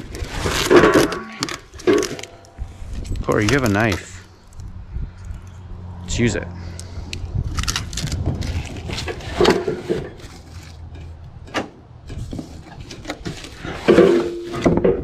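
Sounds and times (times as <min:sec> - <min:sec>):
cardboard tearing and rustling: 0:00.0 - 0:02.3, 0:07.6 - 0:10.8.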